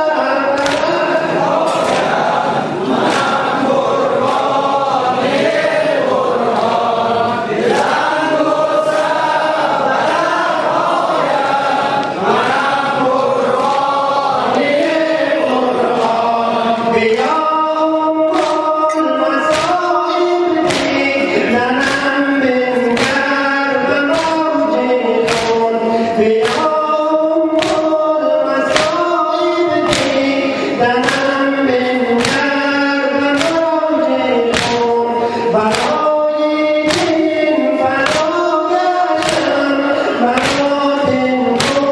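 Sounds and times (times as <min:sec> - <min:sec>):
men chanting in unison: 0:00.0 - 0:41.9
chest slaps in unison: 0:00.6 - 0:01.0, 0:01.6 - 0:02.3, 0:18.3 - 0:19.9, 0:20.6 - 0:22.1, 0:23.0 - 0:23.4, 0:24.1 - 0:24.5, 0:25.2 - 0:25.7, 0:26.4 - 0:26.8, 0:27.6 - 0:28.0, 0:28.7 - 0:29.0, 0:29.8 - 0:30.4, 0:32.2 - 0:32.6, 0:33.4 - 0:33.7, 0:34.4 - 0:35.0, 0:35.6 - 0:36.1, 0:36.8 - 0:37.4, 0:38.0 - 0:38.4, 0:39.2 - 0:39.6, 0:40.3 - 0:41.9.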